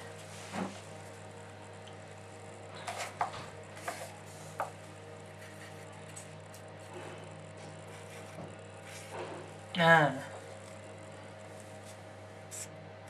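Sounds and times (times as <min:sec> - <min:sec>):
low electrical hum: 0:00.0 - 0:13.0
handling noises on paper: 0:02.8 - 0:07.0, 0:07.6 - 0:09.3.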